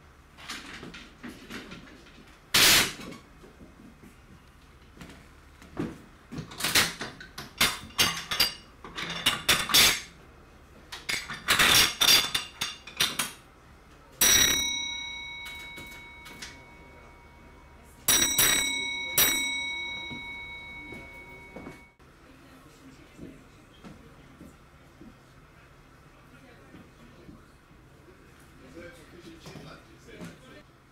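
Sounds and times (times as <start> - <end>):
block bell ringing: 14.2 - 22.0.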